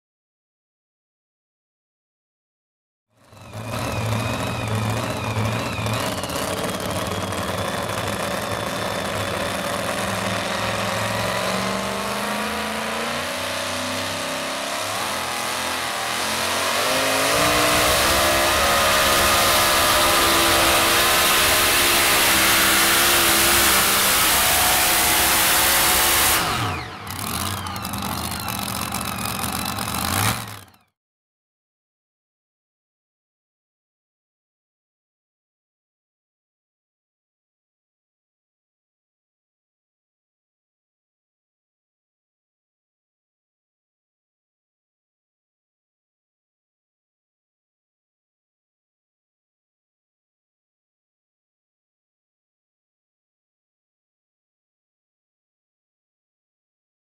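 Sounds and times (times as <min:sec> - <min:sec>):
truck engine at full throttle: 0:03.2 - 0:30.9.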